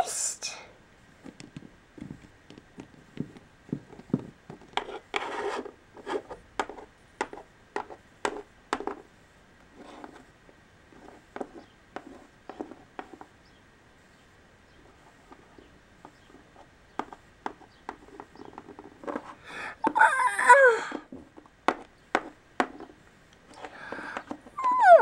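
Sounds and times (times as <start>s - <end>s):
plastic figurines scraping: 4.6s - 6.9s, 9.8s - 10.3s, 18.0s - 20.1s.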